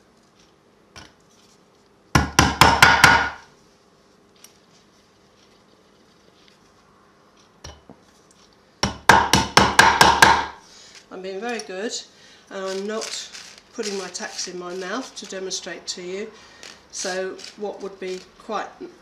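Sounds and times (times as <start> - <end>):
hammer driving tacks into wood: 2.2 - 3.4, 8.8 - 10.6.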